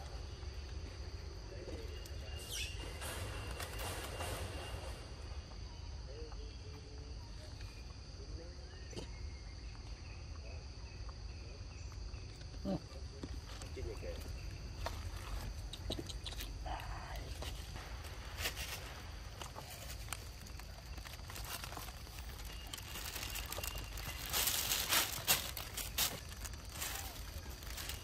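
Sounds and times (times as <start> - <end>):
insects droning: 0.0 - 28.0
leaves rustling: 16.4 - 28.0.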